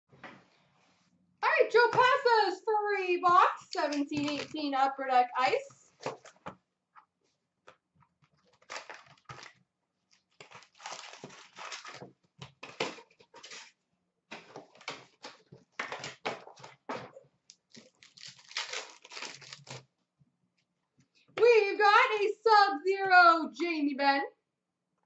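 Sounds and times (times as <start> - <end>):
card wrappers tearing and crinkling: 3.8 - 4.6, 8.4 - 13.8, 17.6 - 19.9.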